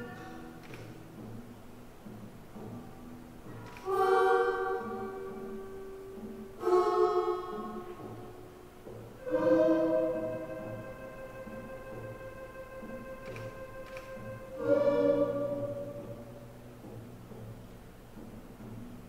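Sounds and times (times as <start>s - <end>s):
sustained music chords: 3.9s - 17.0s
soft low pulse: 9.1s - 17.3s.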